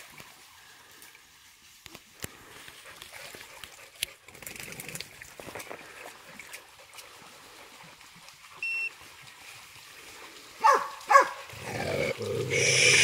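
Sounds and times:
hound yelping: 0:10.6 - 0:11.4.

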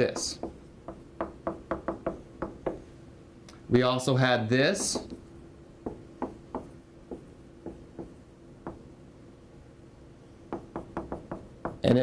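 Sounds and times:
faint steady hum: 0:00.0 - 0:12.0
marker writing on whiteboard: 0:04.8 - 0:05.2.

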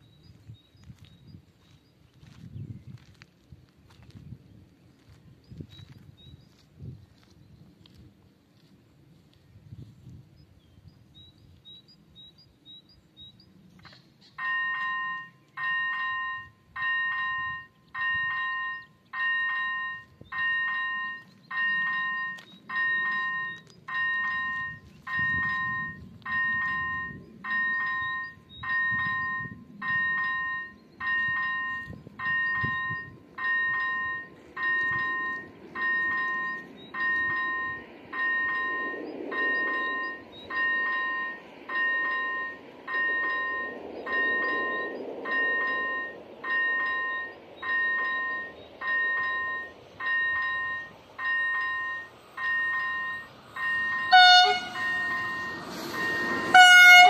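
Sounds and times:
level crossing electronic bell: 0:14.4 - 0:57.0.

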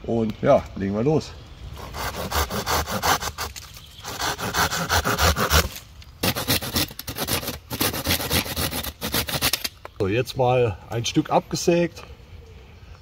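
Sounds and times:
folding saw cutting a branch: 0:01.8 - 0:09.7
blade scraping along a stick: 0:01.8 - 0:09.8.

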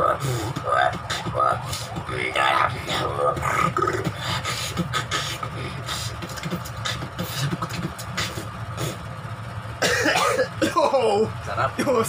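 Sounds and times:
beatboxing vocal bass: 0:00.0 - 0:09.0
mouth snare and hi-hat clicks: 0:06.1 - 0:09.0.

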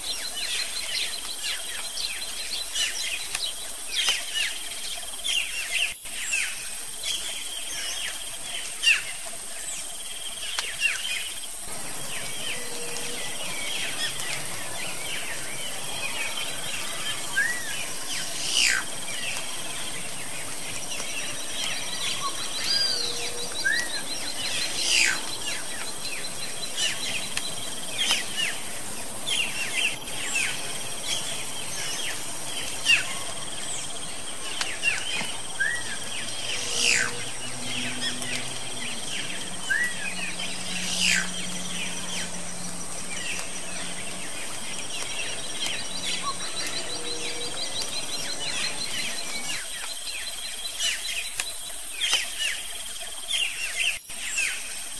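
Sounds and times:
birds chirping: 0:00.0 - 0:54.9
high insect drone: 0:00.0 - 0:54.9.

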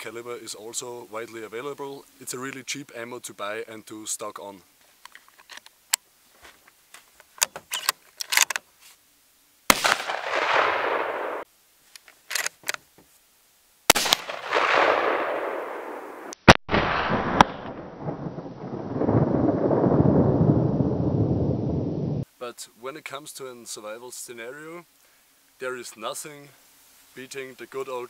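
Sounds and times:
rifle bolt clicking: 0:07.4 - 0:08.6, 0:12.0 - 0:12.8
rifle shots with echo: 0:09.7 - 0:11.4, 0:13.9 - 0:18.2
long rumbling noise: 0:16.9 - 0:22.2.

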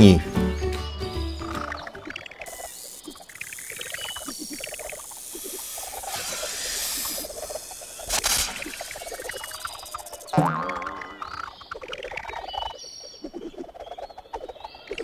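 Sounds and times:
squeaky cartoon animal chittering: 0:01.5 - 0:12.4
hiss: 0:04.4 - 0:10.0.

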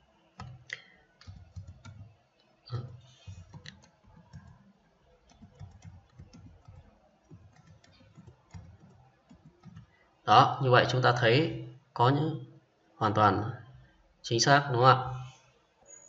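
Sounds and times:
keyboard typing: 0:00.4 - 0:10.0.

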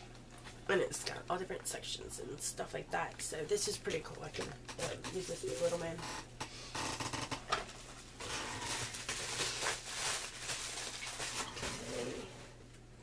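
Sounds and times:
paper rustling: 0:07.7 - 0:12.4.

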